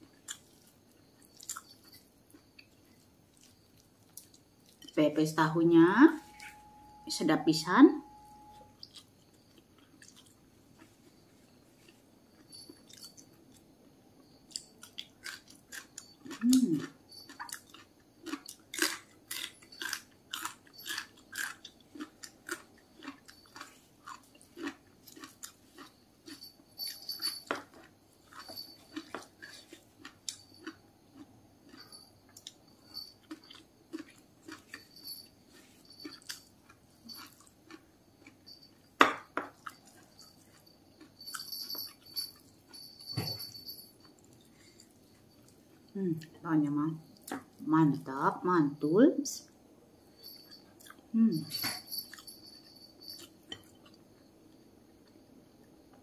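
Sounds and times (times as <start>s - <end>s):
low hum: 5.6s - 8.8s.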